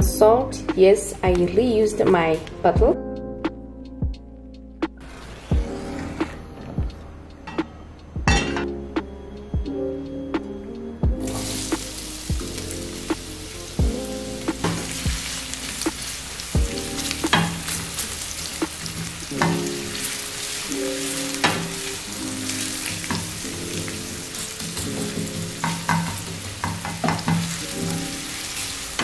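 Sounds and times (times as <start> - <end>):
wooden spoon scraping a pan: 5.1 - 6.8
onions sizzling in oil: 11.2 - 29.0.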